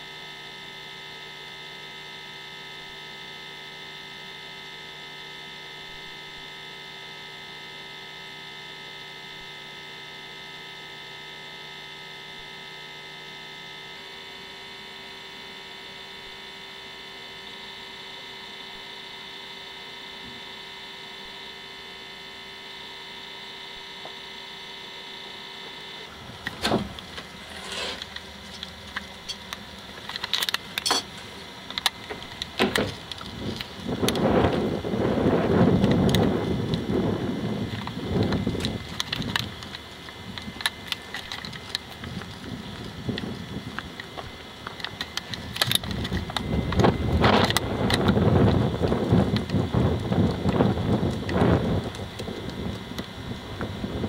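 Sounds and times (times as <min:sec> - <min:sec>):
electrical hum with whining tones: 0:00.0 - 0:54.0
microphone handling noise: 0:32.0 - 0:54.0
wind noise on microphone: 0:32.5 - 0:54.0.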